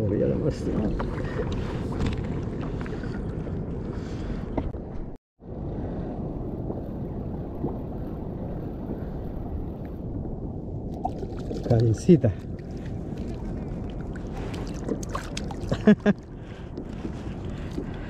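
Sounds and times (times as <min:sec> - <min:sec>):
water sloshing against kayak hull: 0:00.0 - 0:05.1, 0:10.9 - 0:18.0
wind on microphone: 0:00.0 - 0:18.0.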